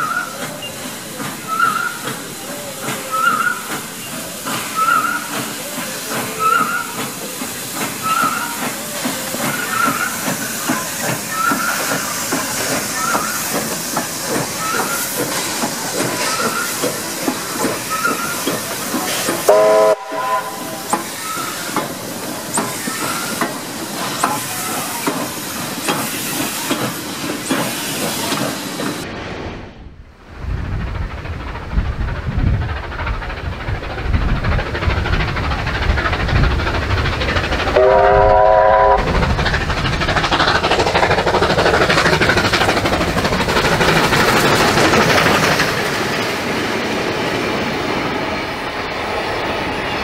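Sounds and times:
steam hissing: 0.0 - 29.1, 30.3 - 50.0
steam whistle blast: 19.4 - 21.4, 37.8 - 39.1
locomotive exhaust beats: 30.3 - 46.6.

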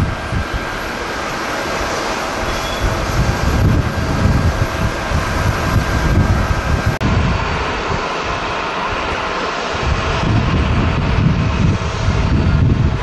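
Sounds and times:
jet engines roaring: 0.0 - 13.0
wind buffeting microphone: 0.0 - 13.0.

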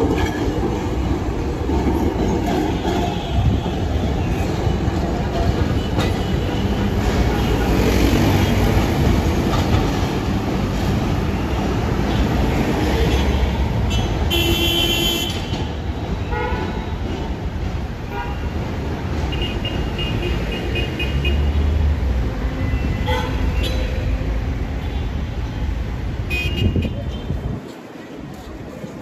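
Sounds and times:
city traffic rumble: 0.0 - 29.0
car horn blasts: 13.9 - 15.4.

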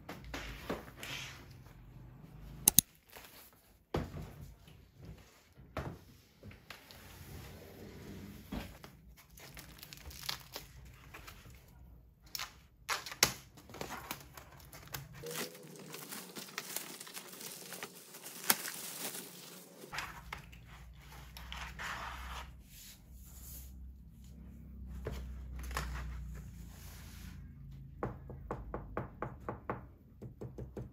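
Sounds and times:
plastic wrap crinkling and tearing: 9.2 - 11.1, 13.0 - 20.0
cardboard packaging rustling: 9.2 - 11.6, 13.6 - 20.3.

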